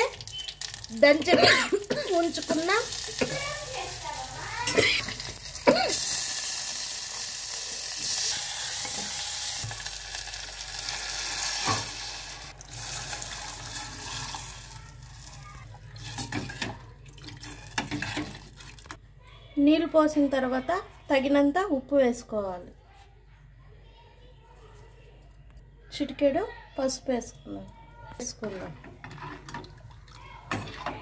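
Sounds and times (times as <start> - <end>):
spices sizzling in oil: 0.0 - 16.6
water poured onto hot oil: 0.0 - 18.9.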